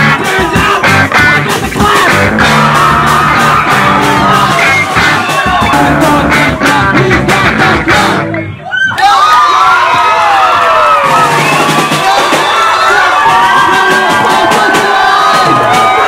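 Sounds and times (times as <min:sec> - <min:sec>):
person singing into a microphone: 0:00.0 - 0:04.9, 0:05.6 - 0:08.5
punk rock band playing: 0:00.0 - 0:08.6, 0:10.9 - 0:16.0.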